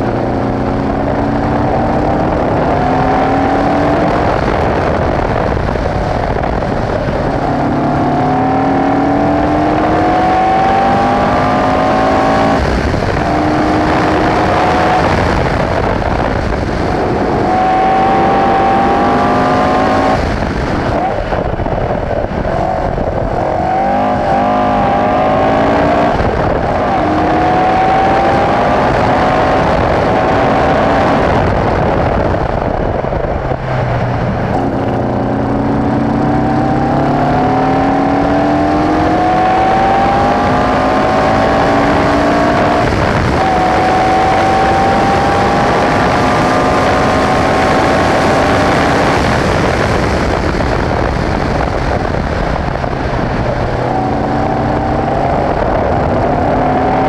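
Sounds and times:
racing car engine revving: 0:00.0 - 0:57.0.

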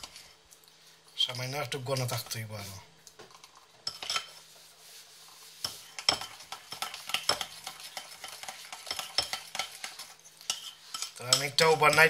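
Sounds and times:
metal spoon scraping ceramic bowl: 0:05.7 - 0:12.0.

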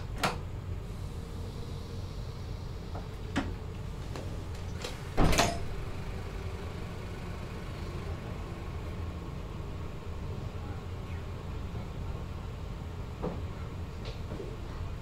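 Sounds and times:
electric train humming: 0:00.0 - 0:13.9
door banging shut: 0:05.2 - 0:05.6.

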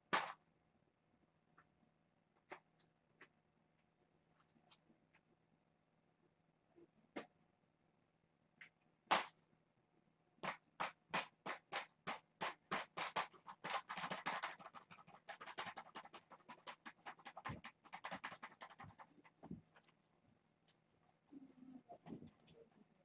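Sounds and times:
toy scratching on play mat: 0:12.0 - 0:20.1.

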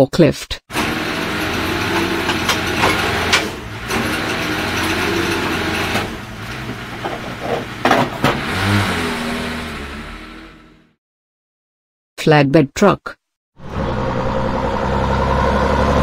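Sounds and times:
forklift engine running: 0:00.7 - 0:11.0, 0:13.6 - 0:16.0
mechanical clatters: 0:00.8 - 0:08.4.

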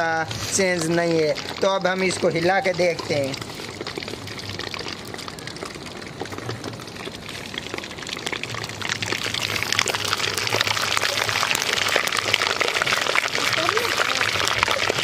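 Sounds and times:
hot oil sizzling and crackling: 0:00.0 - 0:15.0.

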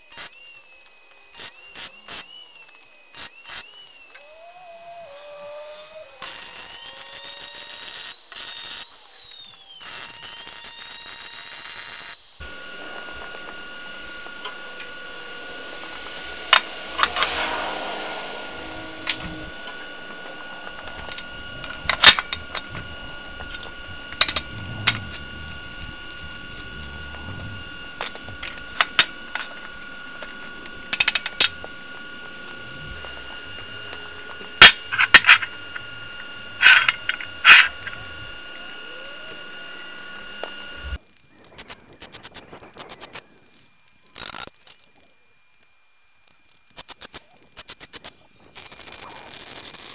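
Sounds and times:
welding arc crackling: 0:01.3 - 0:02.3, 0:03.1 - 0:44.7, 0:46.2 - 0:49.9
metallic clanks of steel parts: 0:20.7 - 0:25.0, 0:34.6 - 0:35.6, 0:36.6 - 0:38.0.

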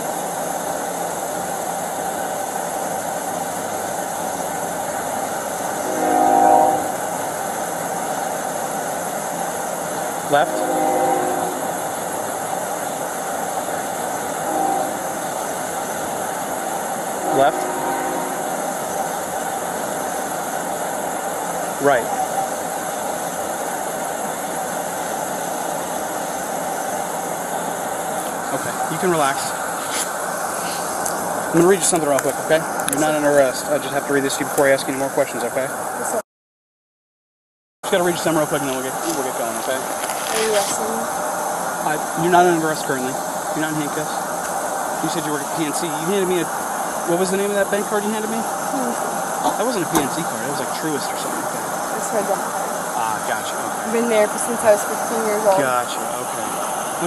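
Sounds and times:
car engine idling: 0:00.0 - 0:36.2, 0:37.9 - 0:57.0
constant hiss: 0:00.0 - 0:36.2, 0:37.8 - 0:57.0
road noise: 0:00.0 - 0:36.2, 0:37.8 - 0:57.0
train horn: 0:05.7 - 0:07.4, 0:10.2 - 0:12.6, 0:13.6 - 0:19.9.

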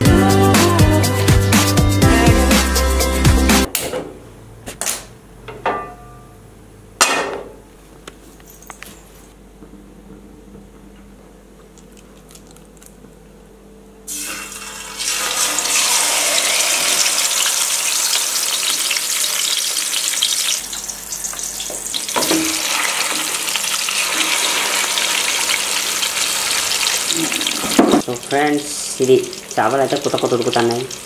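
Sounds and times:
fish sizzling in hot oil: 0:14.1 - 0:31.0.

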